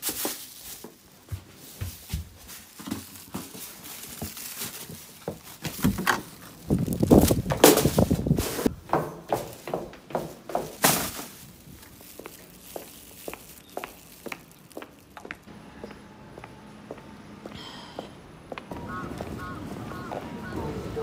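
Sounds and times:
plastic bags crinkling: 0.0 - 8.7, 10.5 - 15.5
footsteps: 0.0 - 20.4
trash bag thudding into bin: 1.8 - 8.7, 10.5 - 11.6.

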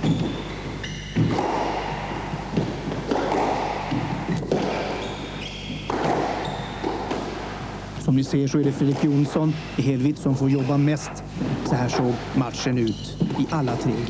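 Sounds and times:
squash ball thumps: 0.0 - 7.8, 13.1 - 14.0
shoes squeaking on wooden floor: 0.0 - 14.0
steady low hum: 0.0 - 14.0.

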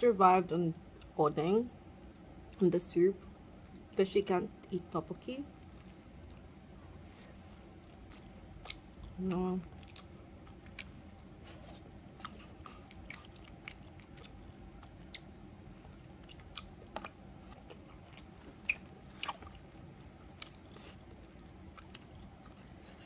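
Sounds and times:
faint room hum: 0.0 - 23.0
person chewing food: 5.6 - 23.0.

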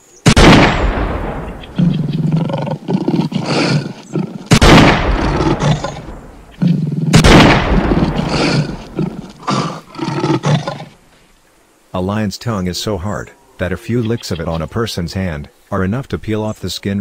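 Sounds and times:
lion roaring and growling: 1.3 - 11.0.

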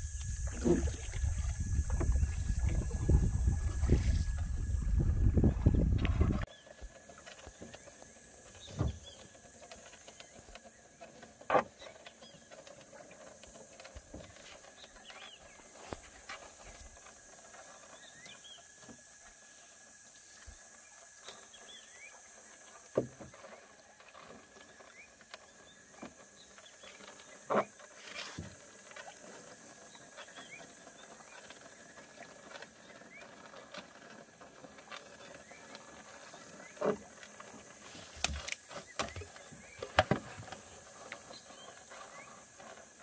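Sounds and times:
high-pitched insect drone: 0.0 - 6.4.

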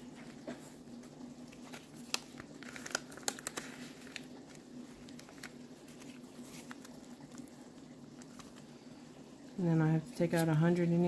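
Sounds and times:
soft paper rustling: 0.0 - 9.1
plastic pocket clicks and crinkles: 1.6 - 7.5.

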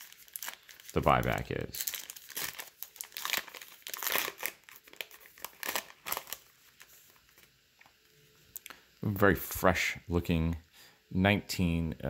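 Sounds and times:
plastic wrapper tearing and crinkling: 0.0 - 7.5.

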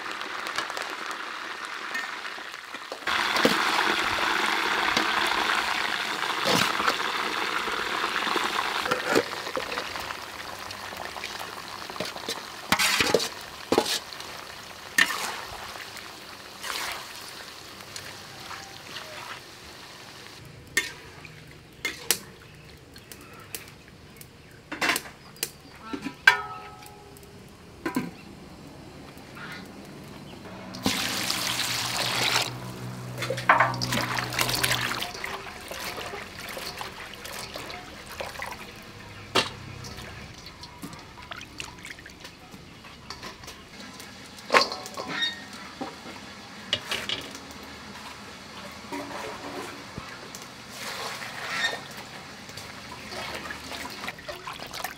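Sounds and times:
water pouring into a metal bowl: 3.1 - 18.6, 30.6 - 42.4, 52.9 - 54.9.

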